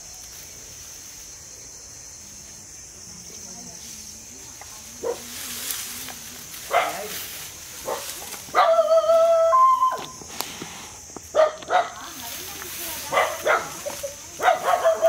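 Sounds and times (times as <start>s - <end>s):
whining animal call: 8.6s - 10.2s.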